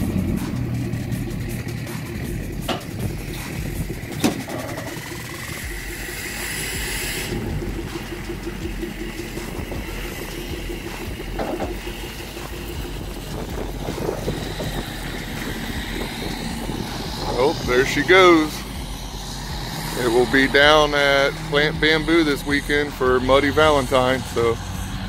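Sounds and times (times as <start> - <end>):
pickup truck engine running: 0.0 - 25.0
knocks from trailer rig: 4.1 - 4.9, 11.3 - 11.9.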